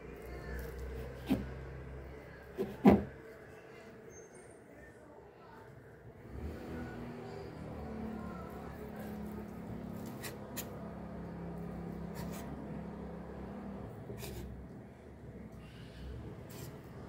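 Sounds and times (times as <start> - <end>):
knife cutting through cake: 9.9 - 10.8, 12.0 - 12.6, 14.1 - 14.5.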